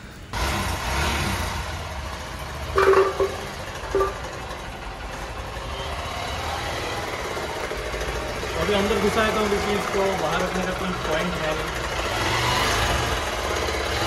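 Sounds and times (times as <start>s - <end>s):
motorcycle engine idling: 1.7s - 14.0s
short loud tones: 2.8s - 4.3s.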